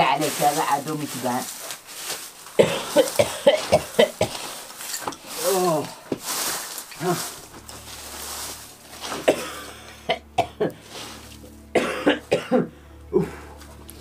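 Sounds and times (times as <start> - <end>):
man coughing: 2.6 - 4.5, 9.2 - 10.8, 11.8 - 13.4
man clearing his throat: 11.8 - 13.4.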